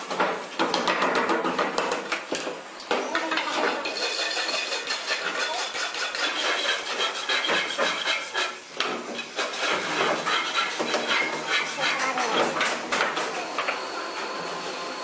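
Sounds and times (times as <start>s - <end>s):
steel blade scraping metal: 3.8s - 8.6s, 9.4s - 12.3s.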